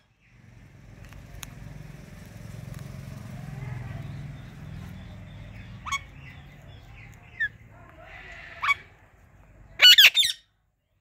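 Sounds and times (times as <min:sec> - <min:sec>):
parakeets chirping and squawking: 0:03.8 - 0:09.1, 0:09.7 - 0:10.5.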